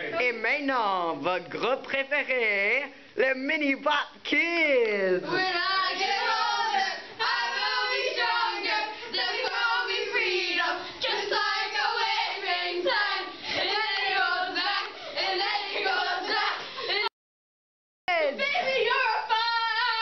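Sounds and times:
children singing together: 5.3s - 17.1s.

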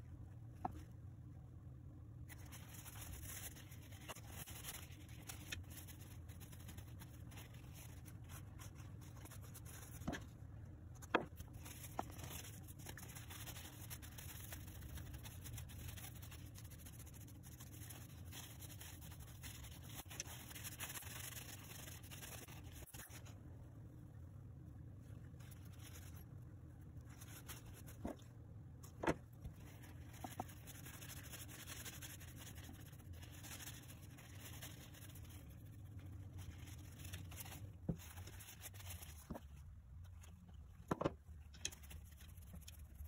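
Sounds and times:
paper towel rubbing and crinkling: 2.3s - 10.3s, 11.1s - 23.4s, 27.0s - 28.2s, 28.9s - 40.4s.

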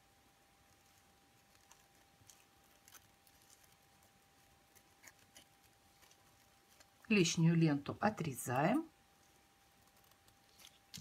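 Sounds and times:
ribbon clicks and rustles: 0.7s - 7.1s, 9.7s - 11.0s.

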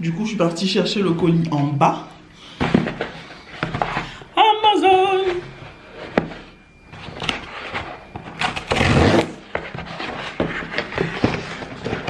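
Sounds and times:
cardboard scraping and crackling: 5.2s - 12.0s.

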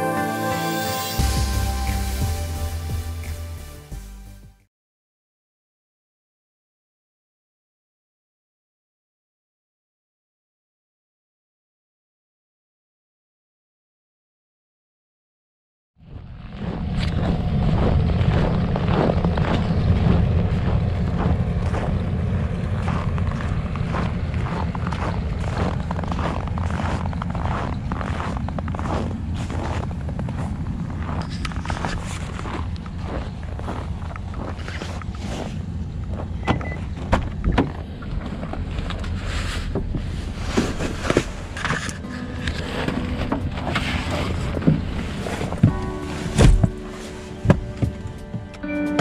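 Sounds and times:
tyre and wind noise: 16.0s - 49.0s.

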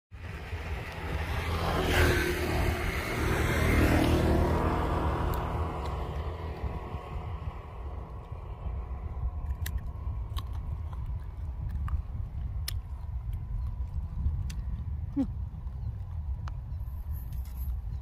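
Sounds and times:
car passing: 0.2s - 10.9s
low rumble: 0.2s - 18.0s.

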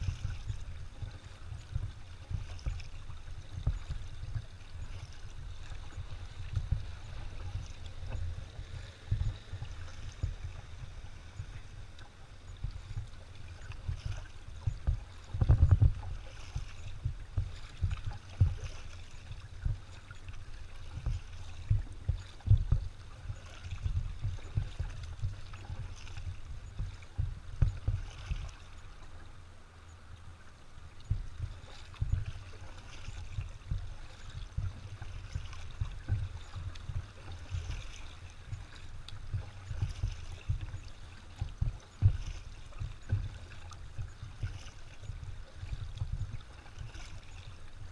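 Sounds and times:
paddle splashing and dripping: 0.0s - 47.9s
low thumps: 31.0s - 32.4s.

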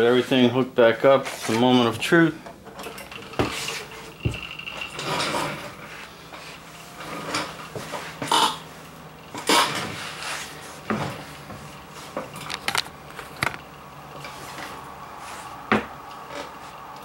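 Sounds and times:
scrape on wooden desk: 9.5s - 11.3s.

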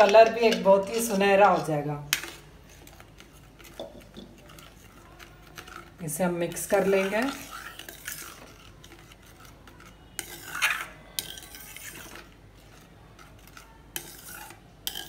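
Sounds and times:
spoon scraping a pan: 0.0s - 15.0s
spoon clinking on metal pan: 10.1s - 12.0s, 14.0s - 15.0s.

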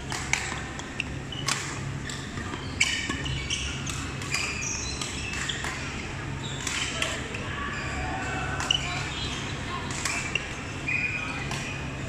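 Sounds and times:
racket hitting shuttlecock: 0.0s - 0.6s, 1.4s - 5.9s
shoe squeaks on court: 2.6s - 5.8s.

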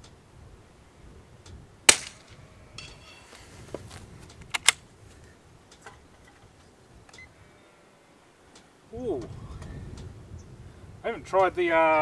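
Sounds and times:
rifle shot: 1.9s - 2.4s
steel plate target ringing: 1.9s - 3.4s
rifle bolt clicks: 4.4s - 4.8s.

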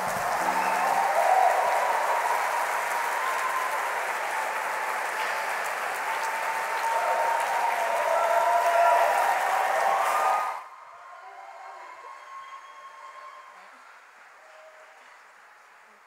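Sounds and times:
audience applauding: 0.0s - 13.3s
people cheering: 0.0s - 16.0s.

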